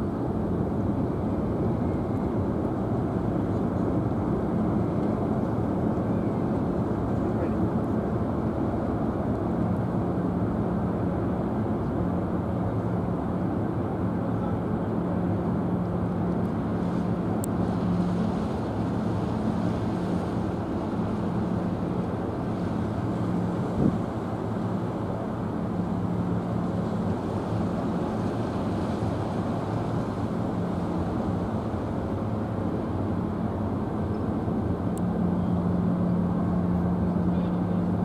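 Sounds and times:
ferry engines humming: 0.0s - 38.0s
wind on microphone: 23.4s - 24.9s.

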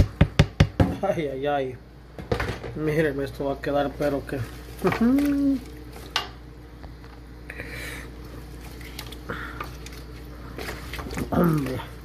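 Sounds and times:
steady low hum: 0.0s - 12.0s
vegetables shuffling and squishing: 4.2s - 6.1s, 8.2s - 12.0s.

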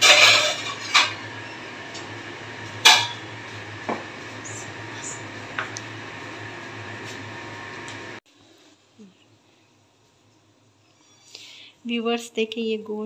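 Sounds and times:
kitchenware clinking and knocking: 0.0s - 1.3s
steady low hum: 0.0s - 8.2s.

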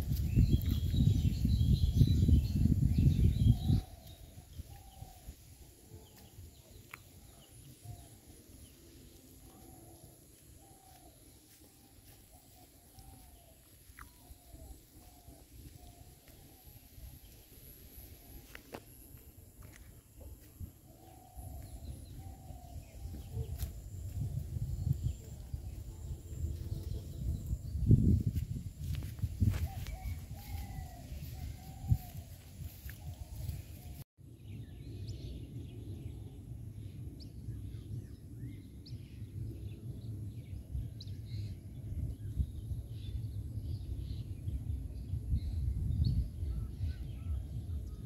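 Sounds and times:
low rumble on microphone: 0.0s - 8.8s, 9.4s - 48.0s
birds chirping and calling: 0.1s - 17.6s, 19.7s - 34.0s.

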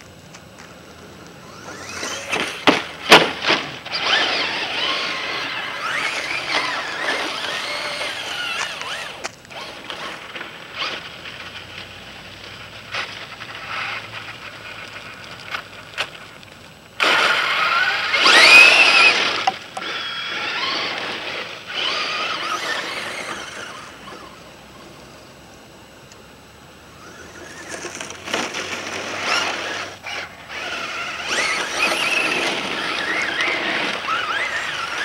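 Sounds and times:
tyres scrabbling on gravel: 0.0s - 24.5s, 27.0s - 35.0s
toy truck motor whining: 1.4s - 11.9s, 12.6s - 15.6s, 17.0s - 25.0s, 26.9s - 35.0s.

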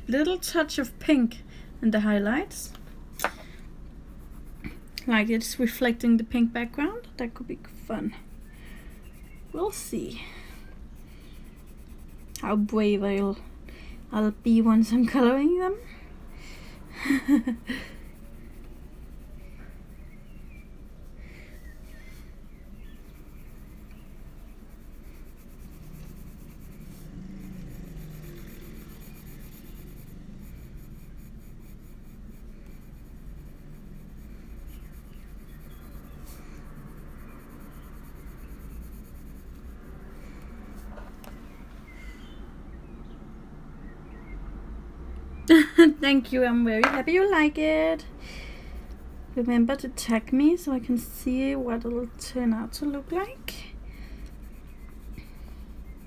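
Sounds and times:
low hum: 1.0s - 43.2s
colored pencil scratching on paper: 4.0s - 41.2s, 46.0s - 56.0s.

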